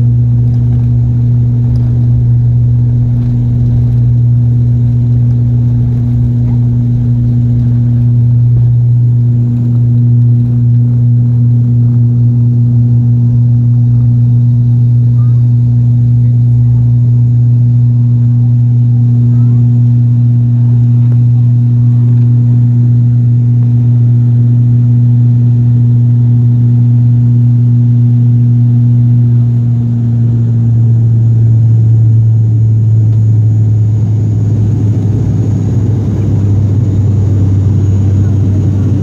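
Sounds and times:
propeller drone in cabin: 0.0 - 39.0
rough rushing noise: 0.4 - 11.8.

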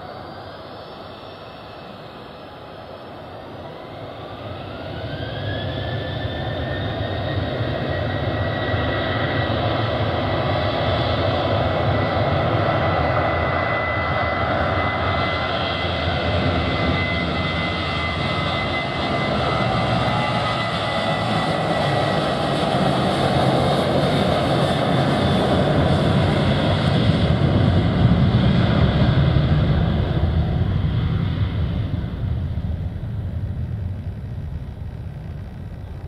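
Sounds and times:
jet engines at takeoff: 0.0 - 36.0
high steady whine: 30.4 - 36.0.

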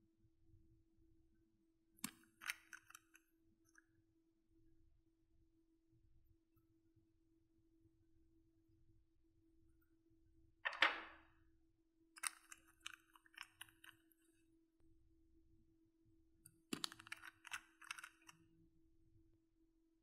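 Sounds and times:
small bottle caps clicking: 2.0 - 3.2, 12.2 - 14.0, 16.7 - 18.4.

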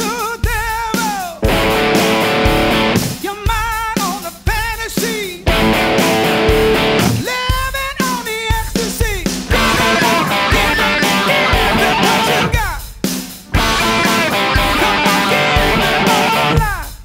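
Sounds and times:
rock backing track with drums: 0.0 - 17.0
electric guitar lead: 1.4 - 3.2, 5.4 - 7.2, 9.5 - 12.6, 13.5 - 16.9.

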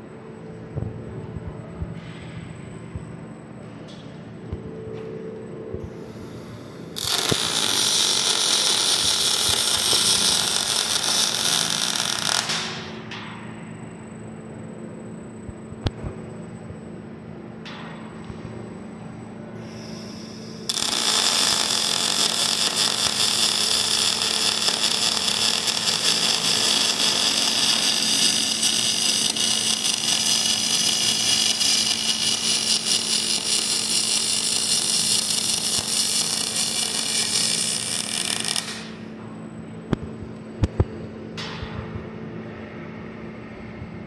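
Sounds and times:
low steady hum: 0.0 - 7.0
welding arc crackling: 6.3 - 13.1, 19.8 - 39.0.

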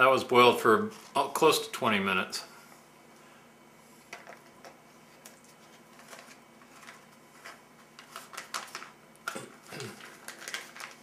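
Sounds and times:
pouch crinkling and rustling: 5.1 - 11.0.

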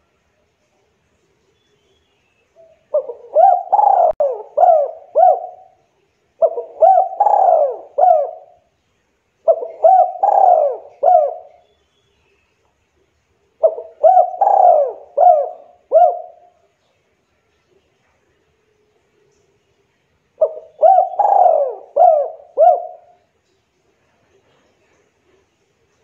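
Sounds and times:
dove cooing: 2.6 - 5.8, 6.4 - 8.7, 9.4 - 11.6, 13.6 - 16.6, 20.4 - 23.3.

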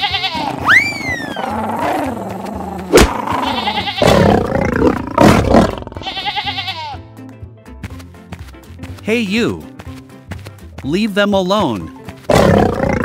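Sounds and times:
goats and sheep bleating: 0.0 - 2.4, 3.0 - 7.1
lions roaring: 0.4 - 6.0, 12.3 - 13.0.

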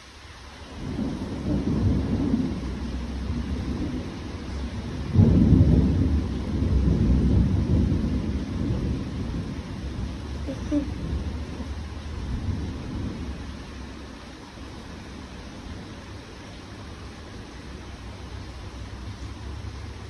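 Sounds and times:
rain shower: 0.0 - 20.0
thunder rumbling: 0.7 - 16.2.

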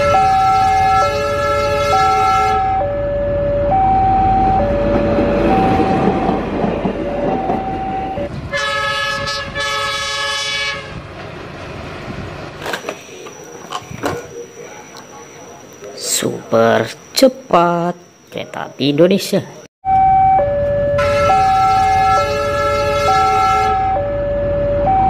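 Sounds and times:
locomotive horn blasts: 0.0 - 3.0, 8.5 - 11.0, 20.9 - 24.0
two-tone warning signal: 0.0 - 9.0, 19.8 - 25.0
passing train rumble and clatter: 0.0 - 15.8, 20.6 - 25.0.

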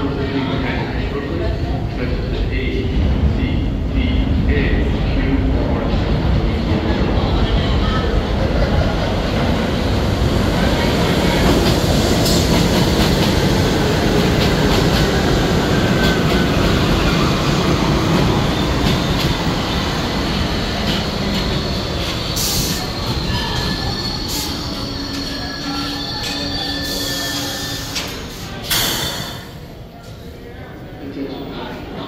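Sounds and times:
subway train rumbling on rails: 0.0 - 32.0
brake and wheel squeals: 22.3 - 28.2.

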